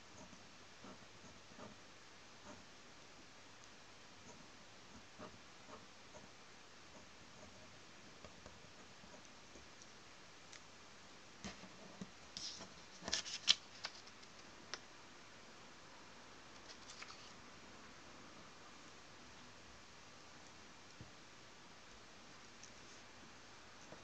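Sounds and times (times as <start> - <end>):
faint steady hiss: 0.0 - 24.0
paper rustling and clicking: 12.4 - 14.8, 16.6 - 17.4.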